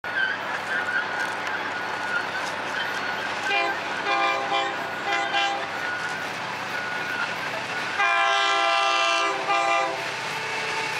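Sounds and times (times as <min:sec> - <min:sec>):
distant train air horn blasts: 0:03.4 - 0:05.8, 0:07.9 - 0:10.9.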